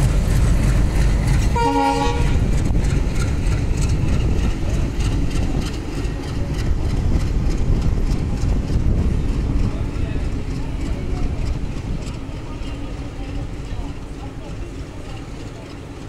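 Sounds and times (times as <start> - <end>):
train coaches rumbling past: 0.0 - 16.0
wheels clattering over rail joints: 0.0 - 16.0
train horn: 1.5 - 2.5.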